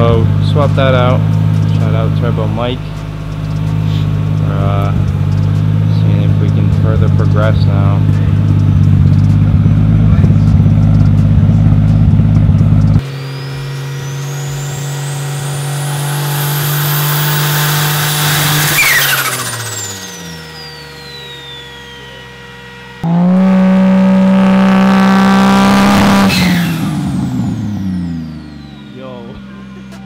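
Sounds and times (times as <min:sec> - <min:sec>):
car engine revving: 0:00.0 - 0:30.0
high whistle: 0:13.0 - 0:23.0.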